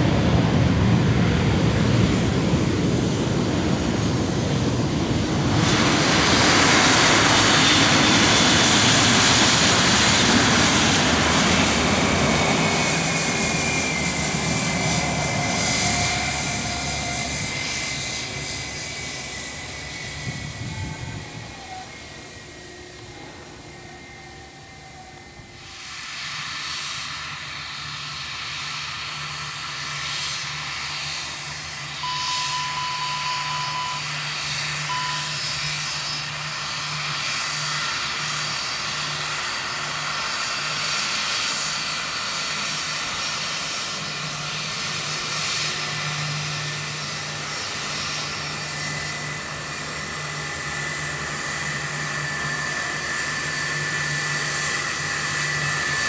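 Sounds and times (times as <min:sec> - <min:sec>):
jet engines whining: 0:00.0 - 0:56.0.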